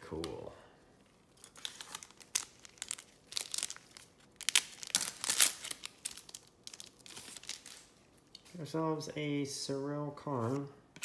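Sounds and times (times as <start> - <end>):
foil wrapper crinkling and tearing: 1.3 - 8.3.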